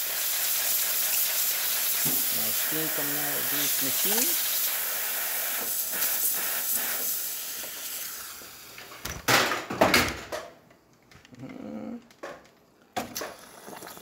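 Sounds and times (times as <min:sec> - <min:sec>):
steam wand hissing: 0:00.0 - 0:08.8.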